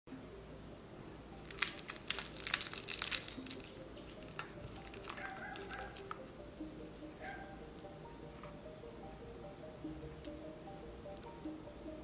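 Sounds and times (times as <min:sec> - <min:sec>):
crispy flatbread crackling when torn: 0:01.5 - 0:06.2.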